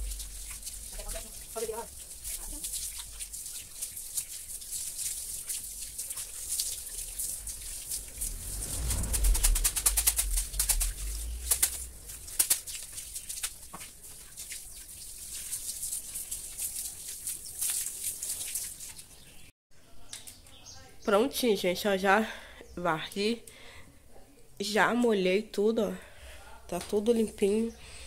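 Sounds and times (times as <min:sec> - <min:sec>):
water hissing from hose: 0:00.0 - 0:19.2
broom scrubbing wet concrete: 0:00.0 - 0:19.4.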